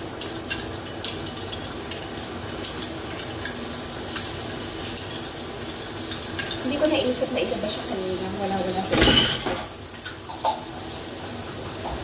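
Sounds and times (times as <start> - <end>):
steak sizzling in a pan: 0.0 - 8.9.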